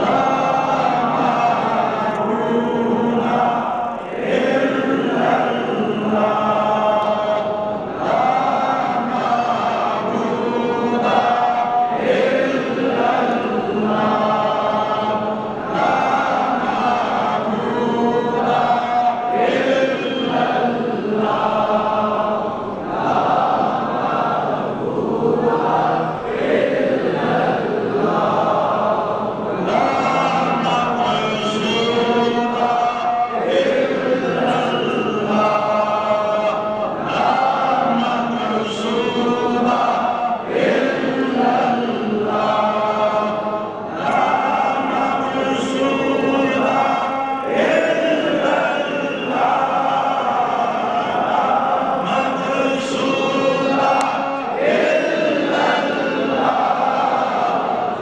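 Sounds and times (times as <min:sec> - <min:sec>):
crowd of men chanting: 0:00.0 - 0:58.0.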